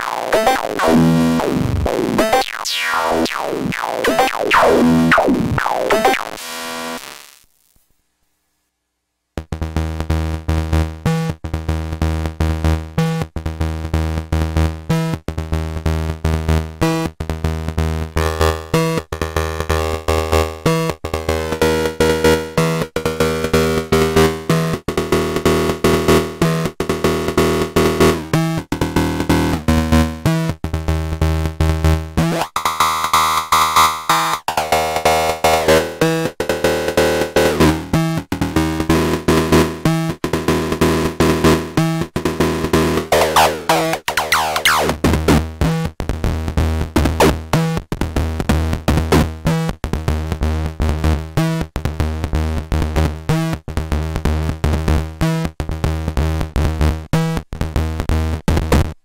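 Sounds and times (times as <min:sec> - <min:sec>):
fast bass-heavy synth notes: 0:00.0 - 0:06.6, 0:32.2 - 0:36.0, 0:40.6 - 0:45.4.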